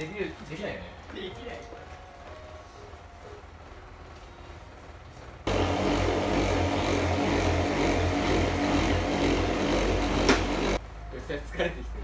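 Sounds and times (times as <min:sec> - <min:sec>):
power tool motor running: 0:05.5 - 0:10.8.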